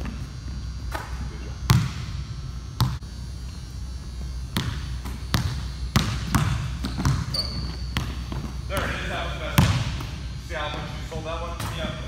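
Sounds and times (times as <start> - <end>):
steady low hum: 0.0 - 12.0
basketball bouncing on hardwood floor: 1.7 - 2.1, 4.6 - 9.0, 9.6 - 10.1.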